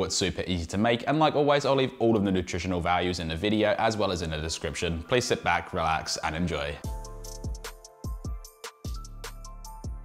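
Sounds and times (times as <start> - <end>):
instrumental music with drums: 6.8 - 10.0.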